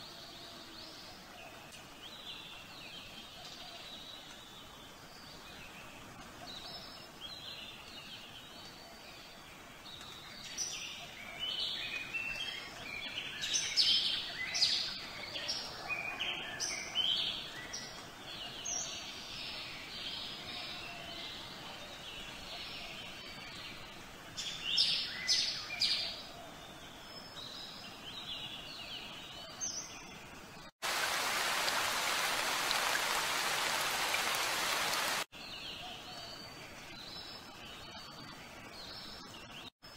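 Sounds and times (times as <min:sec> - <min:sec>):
rain falling: 0:30.8 - 0:35.3.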